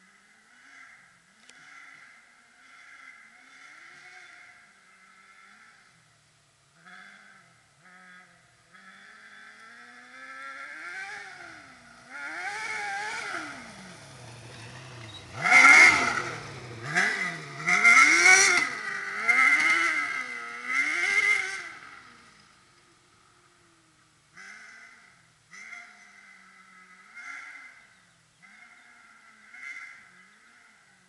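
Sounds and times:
buggy engine revving: 6.7 - 31.0.

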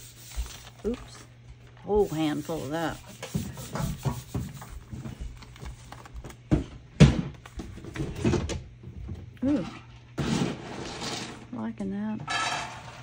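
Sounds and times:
hand rubbing paper: 0.0 - 1.3, 1.9 - 6.1
paper peeling and crackling: 0.0 - 1.3, 5.4 - 6.4.

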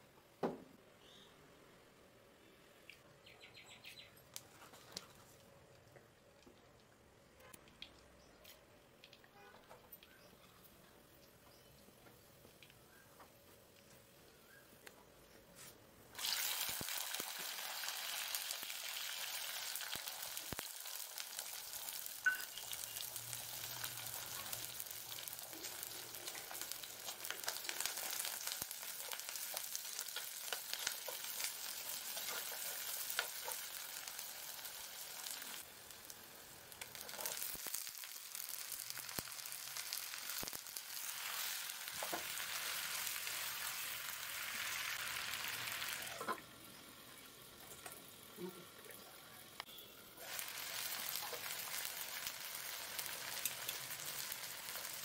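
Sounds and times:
oil sizzling: 16.1 - 55.0.

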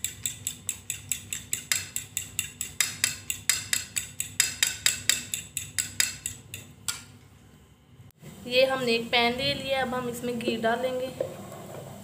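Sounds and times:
fork beating egg in bowl: 0.0 - 7.0.

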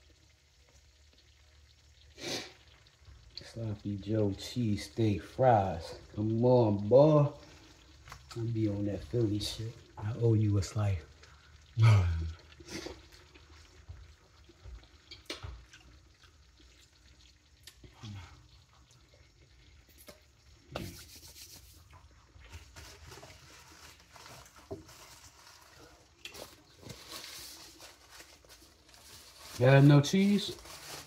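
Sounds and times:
hands rubbing together: 20.8 - 21.9.

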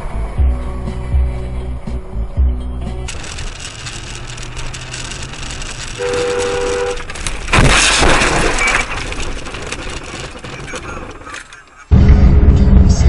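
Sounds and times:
vehicle road noise: 0.0 - 13.0
loud crash: 3.1 - 13.0
two-note car horn: 6.0 - 7.0.

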